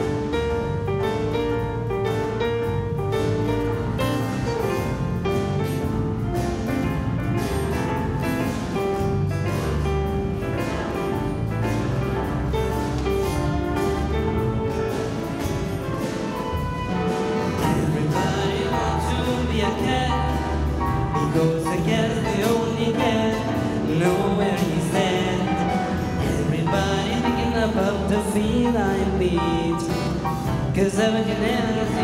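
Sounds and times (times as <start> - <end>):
orchestra playing: 0.0 - 32.0.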